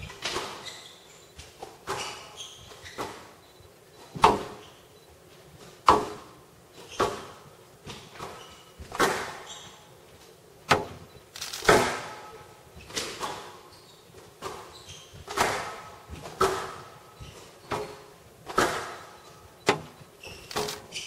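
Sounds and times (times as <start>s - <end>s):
squash ball hitting rackets and walls: 0.0s - 0.8s, 1.4s - 3.4s, 4.1s - 4.8s, 5.6s - 9.9s, 11.7s - 21.0s
shoe squeaks on court floor: 0.3s - 5.0s, 8.2s - 8.8s, 9.4s - 9.9s, 12.8s - 15.3s, 20.2s - 21.0s.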